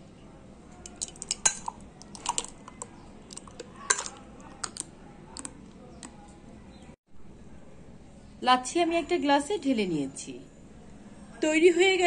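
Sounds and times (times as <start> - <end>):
kitchenware clicks and clinks: 0.8 - 4.8
liquid pouring into cup: 0.9 - 4.8.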